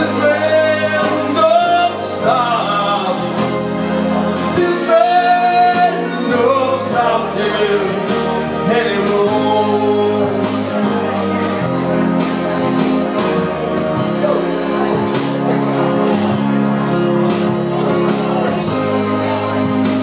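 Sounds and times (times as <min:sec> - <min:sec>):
man singing into a microphone: 0:00.0 - 0:11.2
instrumental backing with beat: 0:00.0 - 0:20.0.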